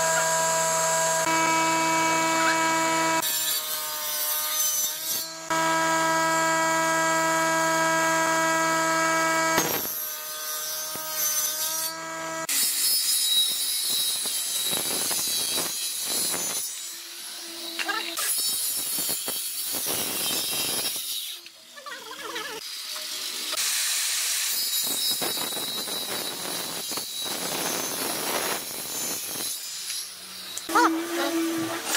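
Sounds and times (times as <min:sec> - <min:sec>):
table saw motor whining: 0:00.0 - 0:12.7, 0:30.2 - 0:31.9
circular saw cutting a board: 0:00.0 - 0:21.6, 0:22.2 - 0:31.9.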